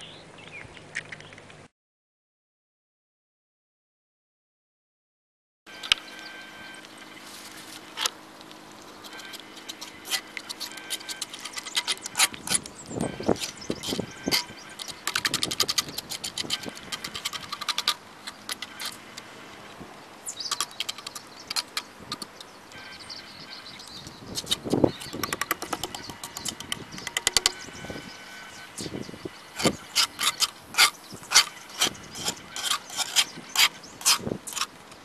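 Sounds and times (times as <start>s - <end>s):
fork scraping metal skillet: 9.0s - 19.1s, 29.5s - 34.7s.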